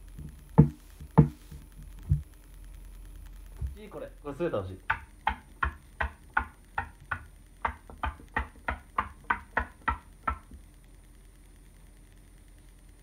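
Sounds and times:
stick toy knocking on tabletop: 0.6s - 1.4s, 4.9s - 10.6s.

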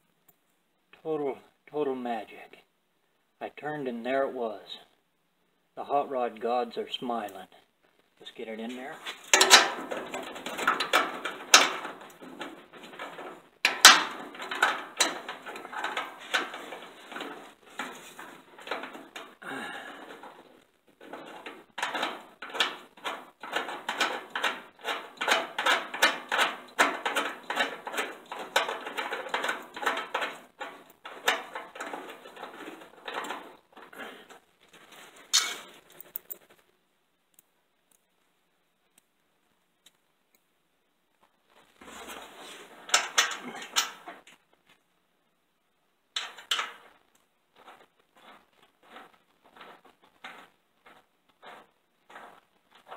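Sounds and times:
metal bolt clicks and rattles: 9.3s - 19.3s, 21.0s - 34.0s, 42.8s - 44.2s, 46.2s - 46.9s.

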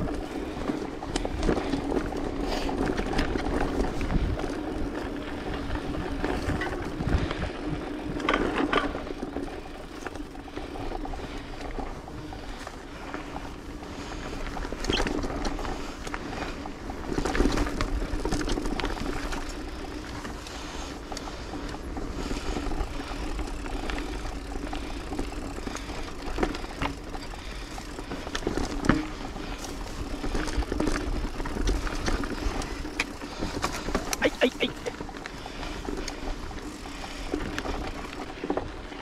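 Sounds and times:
bike clicks and rattles: 0.0s - 39.0s
bike tyres on dirt trail: 0.0s - 39.0s
wind rumble on microphone: 3.0s - 8.4s.

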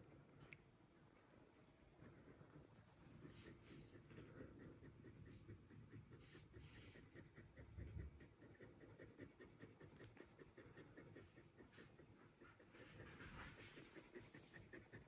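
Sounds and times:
dog panting: 1.6s - 15.0s.

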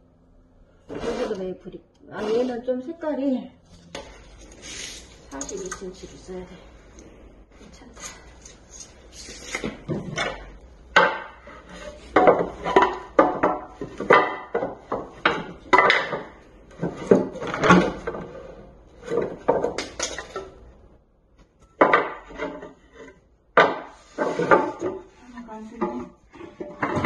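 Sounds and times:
wooden boards knocking and clattering: 9.6s - 20.6s, 21.7s - 25.2s, 25.8s - 27.0s.

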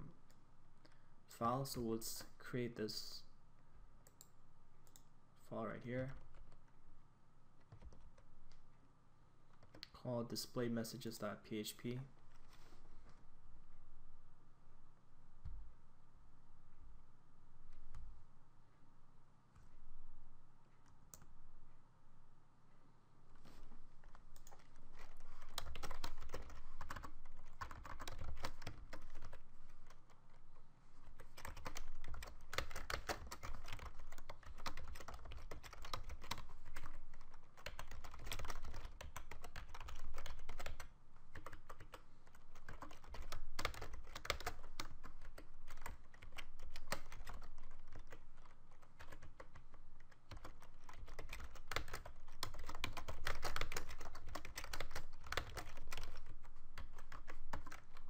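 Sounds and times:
fast typing on keyboard: 24.3s - 30.1s, 31.1s - 58.0s.

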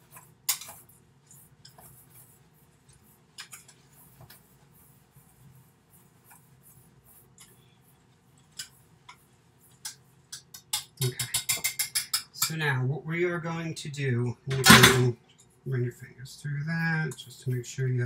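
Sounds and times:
whisk scratching oats in bowl: 0.0s - 12.5s
whisk clinking against bowl: 9.7s - 12.6s.

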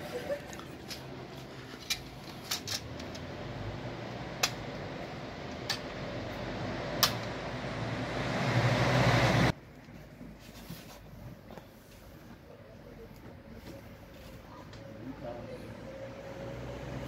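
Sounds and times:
engine humming: 0.0s - 9.6s, 13.7s - 17.0s.

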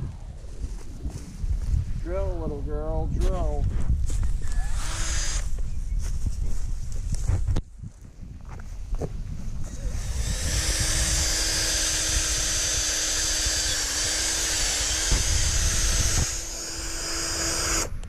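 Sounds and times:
cordless drill boring into wood: 4.3s - 5.5s, 9.7s - 18.0s.

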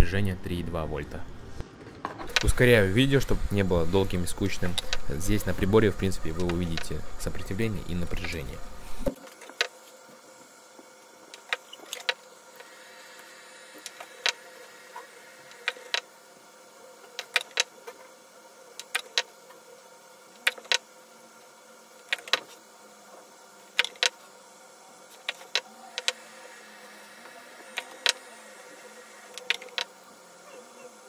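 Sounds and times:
faint steady hum: 0.0s - 31.0s
tester probes clicking on metal: 4.6s - 5.1s
battery cells clicking when set down: 29.3s - 29.9s.

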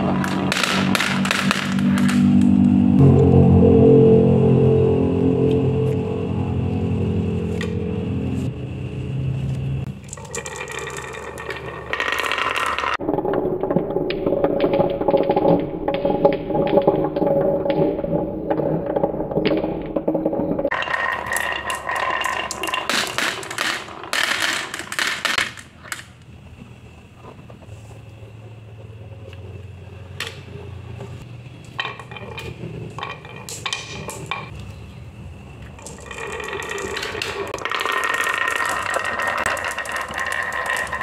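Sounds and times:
marbles clattering down wooden run: 0.0s - 2.4s, 9.9s - 26.2s, 35.8s - 41.0s.

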